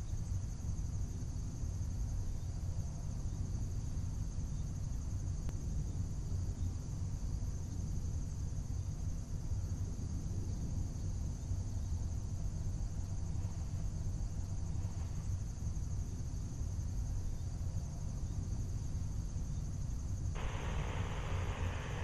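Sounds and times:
high-pitched chirring drone: 0:20.4 - 0:22.0
low rumble: 0:20.4 - 0:22.0.

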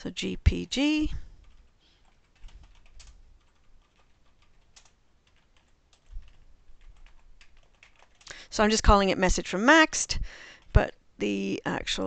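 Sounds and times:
computer keyboard typing: 0:01.4 - 0:08.4.

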